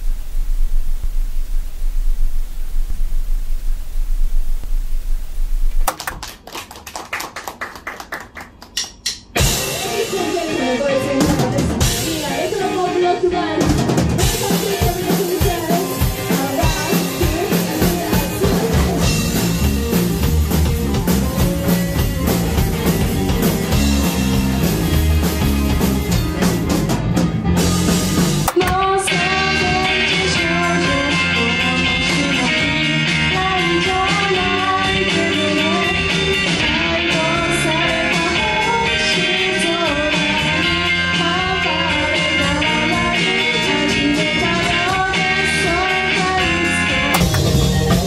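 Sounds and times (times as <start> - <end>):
television static hiss: 0.0 - 6.0
rock band playing: 8.9 - 48.0.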